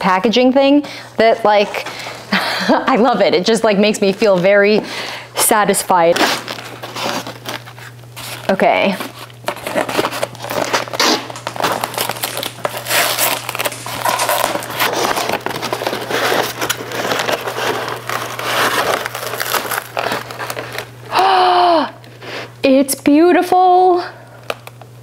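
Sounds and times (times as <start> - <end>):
paper crinkling and rustling: 6.0 - 21.0.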